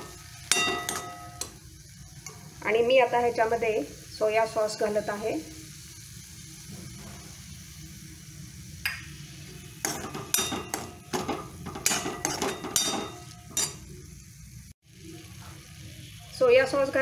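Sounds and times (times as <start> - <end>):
steel spoon scraping a pan: 0.0 - 1.6, 9.8 - 14.0
oil sizzling: 0.0 - 17.0.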